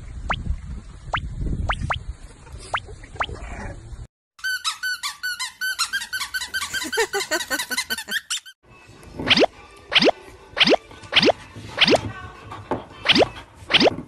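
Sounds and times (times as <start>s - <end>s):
high-pitched squeaks: 4.4s - 7.2s.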